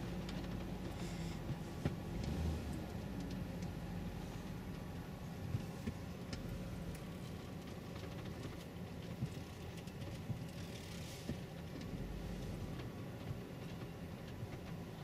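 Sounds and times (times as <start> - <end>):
car engine and road rumble: 0.0 - 15.0.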